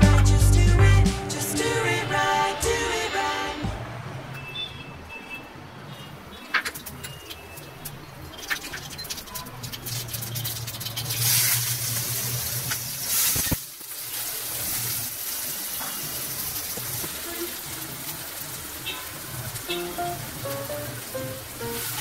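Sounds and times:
food sizzling in a pan: 8.4s - 22.0s.

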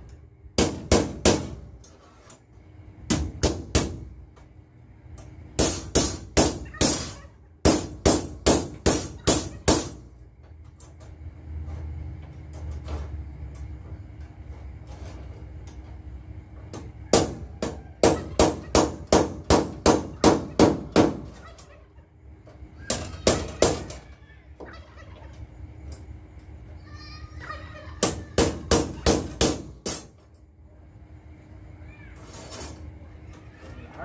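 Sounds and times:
hammer on steel: 5.6s - 10.0s.

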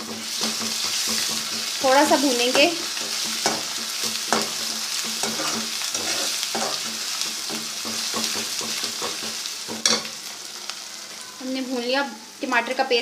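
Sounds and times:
utensil scraping and knocking a pan: 0.0s - 1.8s, 2.4s - 10.1s
food sizzling in hot oil: 0.0s - 13.0s.

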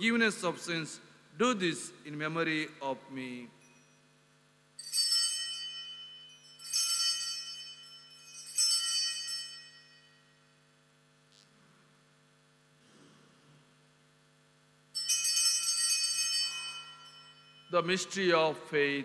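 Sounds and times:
altar bells ringing: 4.8s - 10.5s, 15.0s - 18.8s.

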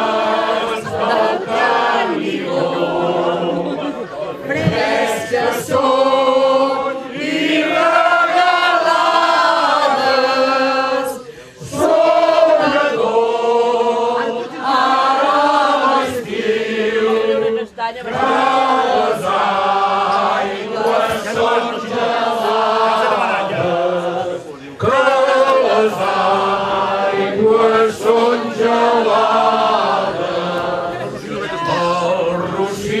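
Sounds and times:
men and women singing unaccompanied: 0.0s - 33.0s.

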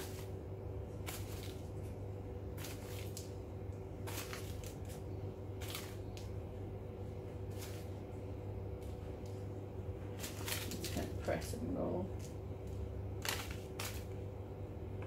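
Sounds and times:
steady low hum: 0.0s - 15.0s
plastic packet crinkling: 2.6s - 3.4s, 4.0s - 6.3s, 10.2s - 11.5s, 12.1s - 14.2s.

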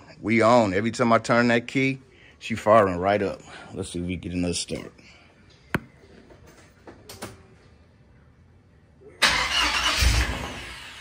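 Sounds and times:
engine turning over and firing: 9.2s - 11.0s.

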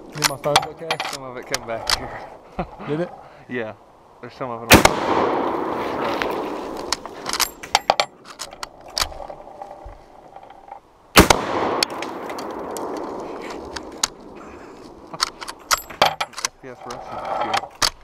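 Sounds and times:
loud rifle shot with echo: 4.7s - 6.5s, 11.2s - 14.4s.

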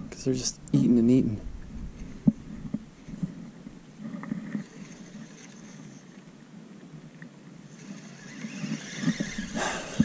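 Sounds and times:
faint low rumble: 0.0s - 4.8s.

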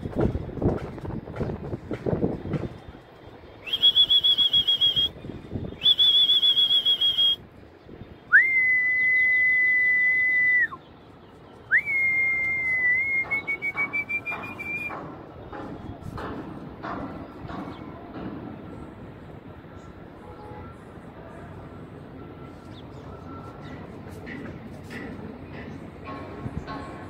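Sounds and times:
long loud whistles: 3.6s - 7.4s, 8.3s - 10.8s, 11.7s - 14.9s.

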